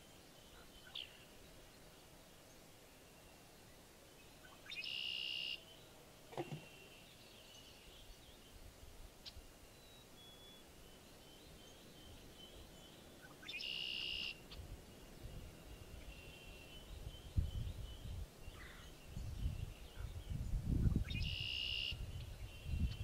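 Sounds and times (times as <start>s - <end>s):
wind rumble on microphone: 14.5s - 23.0s.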